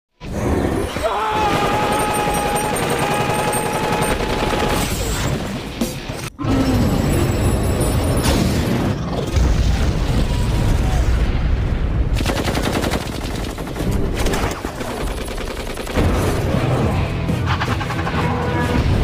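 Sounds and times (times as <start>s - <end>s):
explosion rumble: 8.2s - 12.2s.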